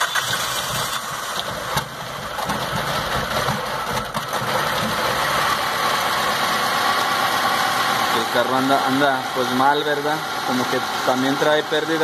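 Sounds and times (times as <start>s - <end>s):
car engine idling roughly: 0.0s - 12.0s.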